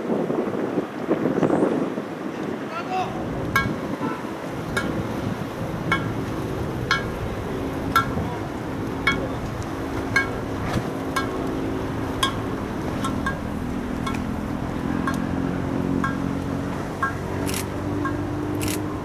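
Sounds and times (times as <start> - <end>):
low drone: 3.2 - 19.0.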